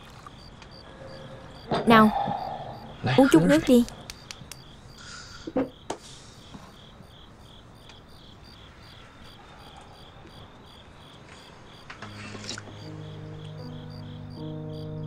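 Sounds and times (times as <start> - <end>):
crickets chirping: 0.0 - 15.0
soft low music tones: 12.0 - 15.0.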